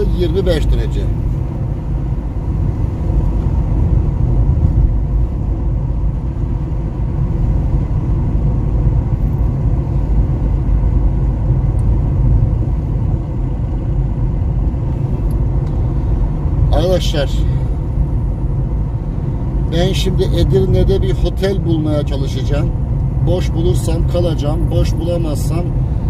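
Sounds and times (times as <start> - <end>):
car cabin rumble: 0.0 - 26.0.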